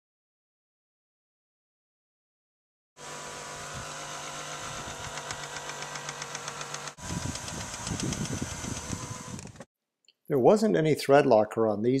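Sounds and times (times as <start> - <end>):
power tool whirring and clicking: 3.0 - 9.7.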